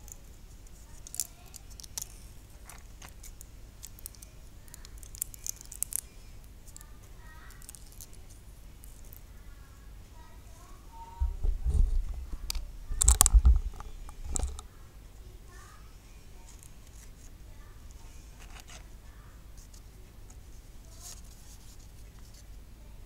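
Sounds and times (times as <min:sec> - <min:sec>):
metal cap clicks and bumps: 0:12.5 - 0:14.6.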